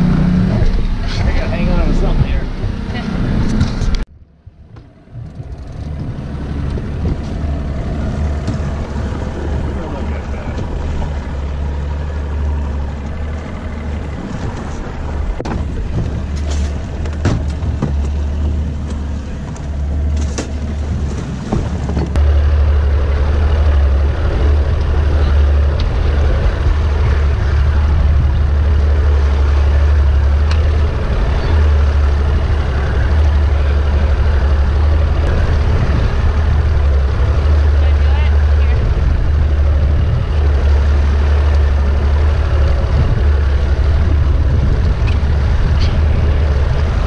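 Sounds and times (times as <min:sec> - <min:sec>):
boat motor droning: 0:00.0 - 0:47.0
knocks on boat: 0:15.4 - 0:22.2.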